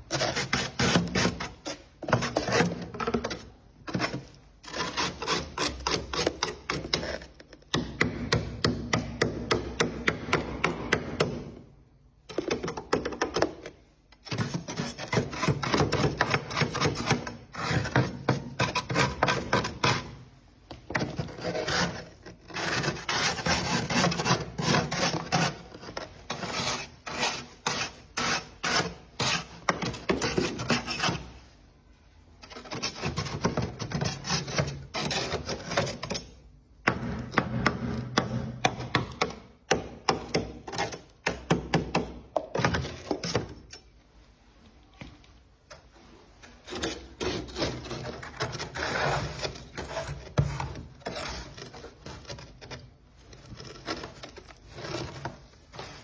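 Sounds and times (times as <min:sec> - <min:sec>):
knife scraping frost: 0:03.9 - 0:07.3, 0:21.2 - 0:31.3, 0:46.6 - 0:52.4.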